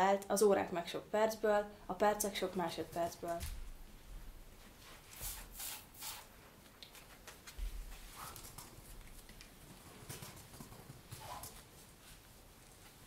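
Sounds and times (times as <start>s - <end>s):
spray bottle squirting: 5.2s - 6.4s.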